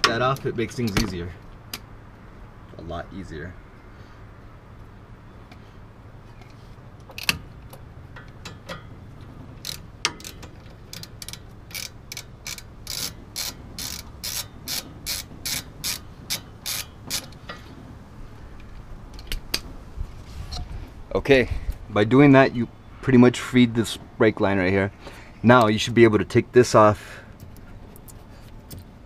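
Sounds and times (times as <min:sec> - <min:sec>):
ratchet wrench clicking: 0:09.6 - 0:17.4.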